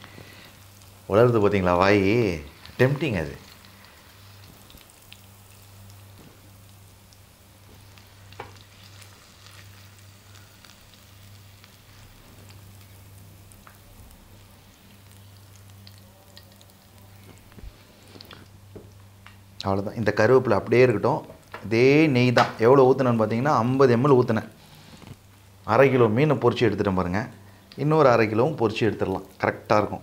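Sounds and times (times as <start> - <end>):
fish sizzling in a pan: 0.0 - 19.6.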